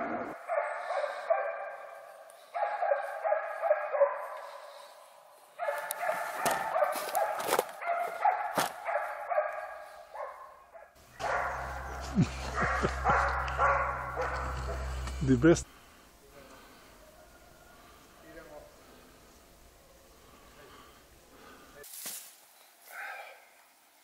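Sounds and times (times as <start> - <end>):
dogs barking and baying: 0.0 - 15.4.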